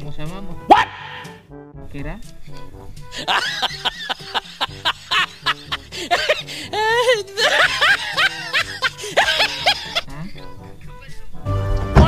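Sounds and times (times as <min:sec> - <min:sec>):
laughter sound effect: 0:03.2 - 0:10.0.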